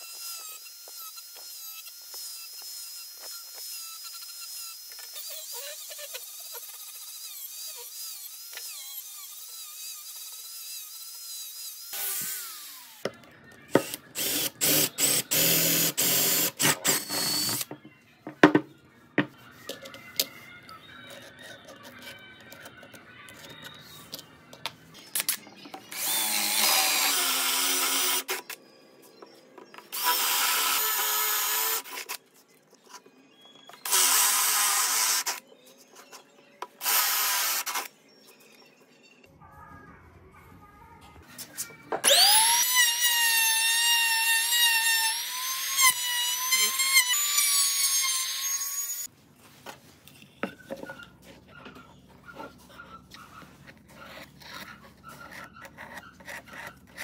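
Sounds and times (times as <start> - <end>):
cordless drill boring into wood: 13.8 - 17.7, 25.9 - 28.4, 29.9 - 32.1, 33.8 - 35.4, 36.8 - 37.9, 42.0 - 49.1
power tools working wood: 13.8 - 17.7, 25.9 - 28.4, 42.0 - 49.1.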